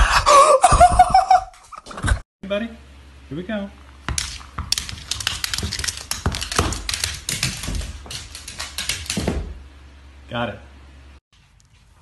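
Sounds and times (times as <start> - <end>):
dog claws scrabbling on hardwood: 4.1 - 9.6.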